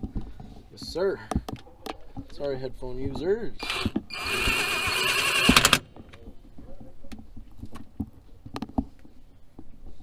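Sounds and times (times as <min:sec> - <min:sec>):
loud power tool: 0:03.6 - 0:05.8.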